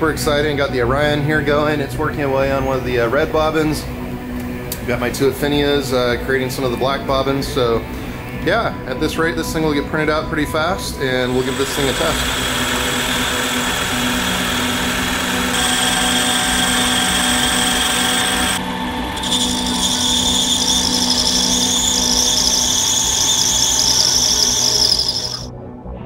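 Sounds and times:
metal lathe running: 0:11.0 - 0:25.5
cutting tool squealing: 0:11.1 - 0:25.5.

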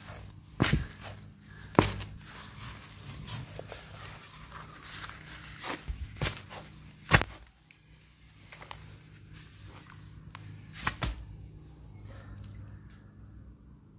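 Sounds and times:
boot dropping onto mud: 0:00.6 - 0:02.2.

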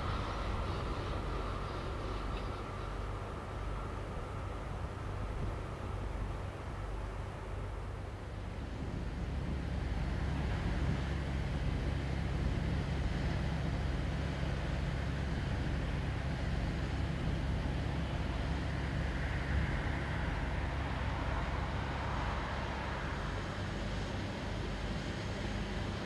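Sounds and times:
diesel engine drone: 0:00.0 - 0:26.0.

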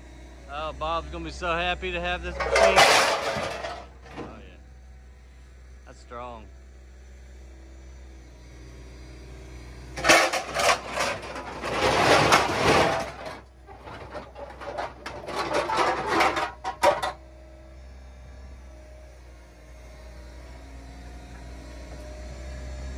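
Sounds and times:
excavator low drone: 0:00.0 - 0:22.9
scrap metal clattering in dumpster: 0:02.0 - 0:04.5, 0:10.0 - 0:17.2.

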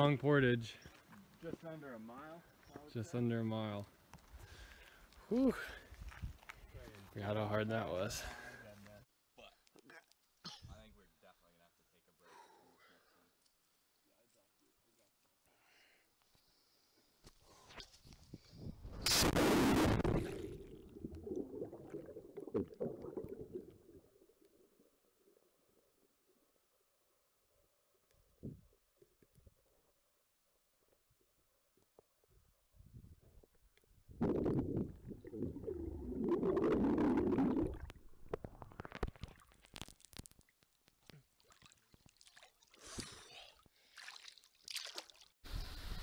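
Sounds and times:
underwater bubbling and gurgling: 0:19.4 - 0:26.2, 0:34.2 - 0:40.4
splash into water: 0:43.9 - 0:45.4.

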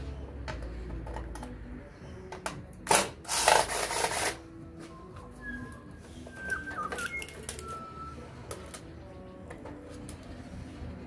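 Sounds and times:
birds whistling: 0:05.4 - 0:08.4.

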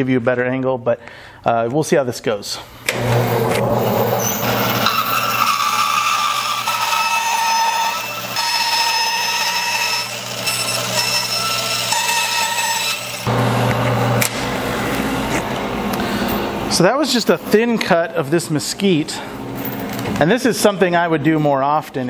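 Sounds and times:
saw blade whining through wood: 0:02.9 - 0:13.8
bandsaw motor hum: 0:02.9 - 0:17.6.

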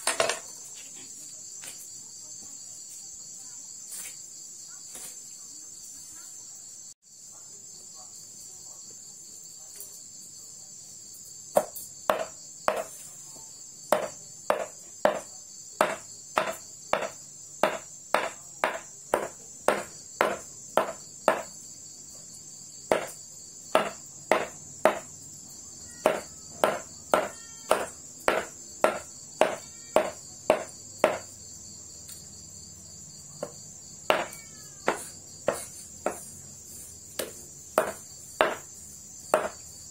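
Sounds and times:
crickets chirping: 0:00.0 - 0:39.9
knife chopping on wooden block: 0:11.6 - 0:13.0, 0:13.9 - 0:21.5, 0:22.9 - 0:25.1, 0:26.0 - 0:31.3, 0:33.4 - 0:36.3, 0:37.2 - 0:38.7, 0:39.3 - 0:39.6.

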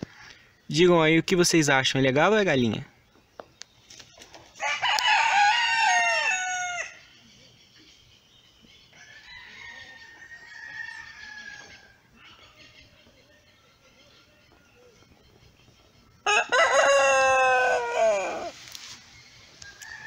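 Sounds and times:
rooster crowing: 0:04.6 - 0:07.0, 0:16.2 - 0:18.6, 0:19.6 - 0:20.0.

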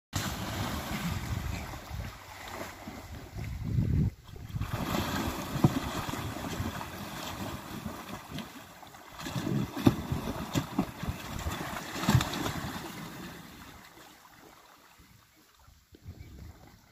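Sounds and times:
loud splashes: 0:00.1 - 0:03.4, 0:04.3 - 0:13.7
water splashing and churning: 0:00.1 - 0:16.9
wind buffeting microphone: 0:00.9 - 0:06.9.

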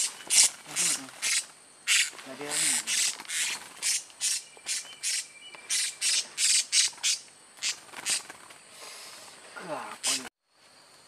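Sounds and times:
parrot squawking shrilly: 0:00.0 - 0:08.2.

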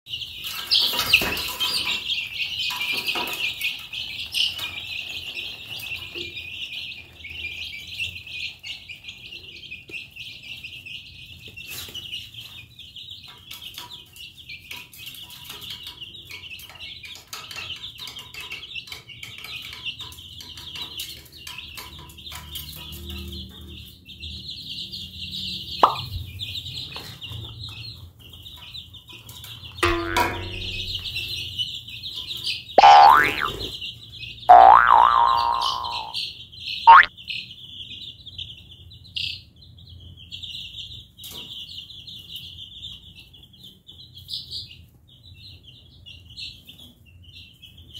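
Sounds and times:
baby chicks peeping: 0:00.1 - 0:47.9
tone swooping down in pitch: 0:29.8 - 0:31.2, 0:32.8 - 0:33.7, 0:34.5 - 0:36.2, 0:36.9 - 0:37.1.

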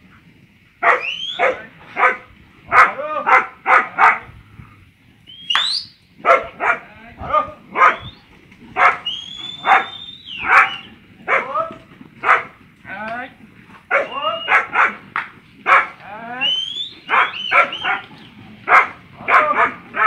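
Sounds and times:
dog barking: 0:00.8 - 0:04.3, 0:06.2 - 0:06.8, 0:07.7 - 0:08.1, 0:08.8 - 0:11.5, 0:12.2 - 0:12.5, 0:13.9 - 0:15.0, 0:15.7 - 0:16.0, 0:17.1 - 0:18.1, 0:18.7 - 0:20.0.

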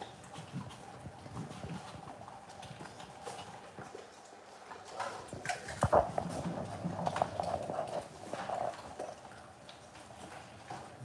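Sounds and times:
dog eating from metal bowl: 0:02.8 - 0:10.9.

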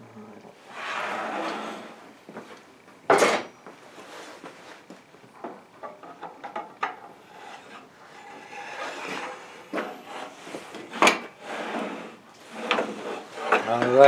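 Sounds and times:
wooden board scraping: 0:00.6 - 0:02.0, 0:07.2 - 0:14.0.

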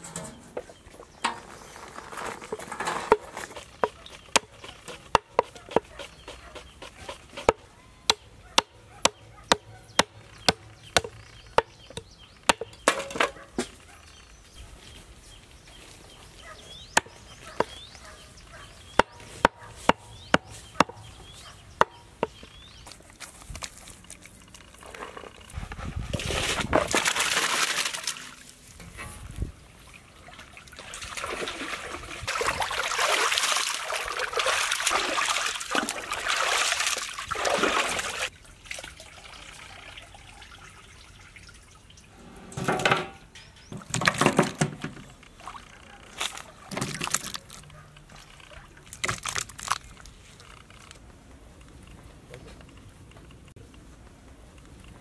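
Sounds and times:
cleaver chopping meat on wood: 0:19.0 - 0:21.0.

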